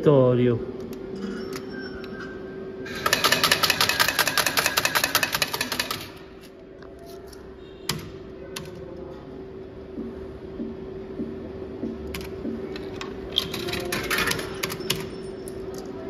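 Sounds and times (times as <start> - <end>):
slot machine hum: 0.0 - 6.4, 12.1 - 15.8
coins clattering into payout tray: 2.9 - 6.2, 13.3 - 15.7.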